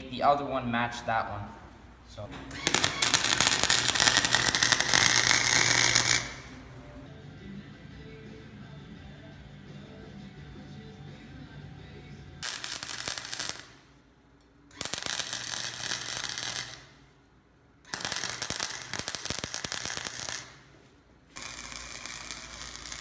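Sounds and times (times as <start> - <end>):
arc welder crackling: 2.5 - 6.7, 12.4 - 17.1, 17.8 - 23.0.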